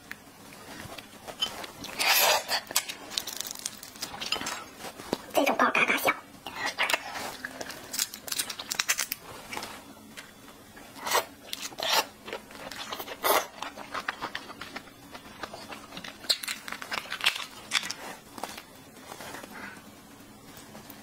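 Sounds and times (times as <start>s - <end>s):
shrimp shell cracking: 7.9s - 9.2s.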